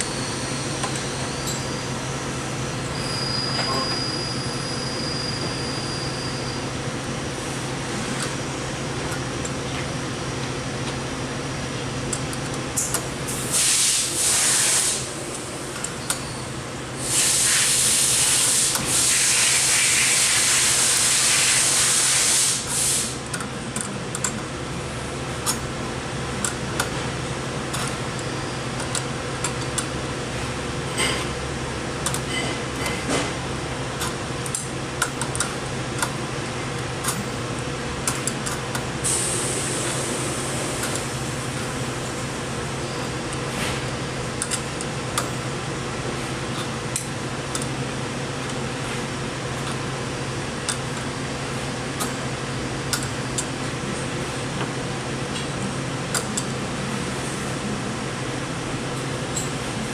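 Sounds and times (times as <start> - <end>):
steady low hum: 4.6 - 59.9
loud hissing bursts: 13.3 - 15.2, 17.0 - 23.2
wrench clicking on metal: 23.2 - 24.4, 27.7 - 29.9, 34.0 - 36.2, 37.0 - 37.3, 38.0 - 38.9, 44.4 - 45.3, 46.6 - 47.7, 52.9 - 53.5.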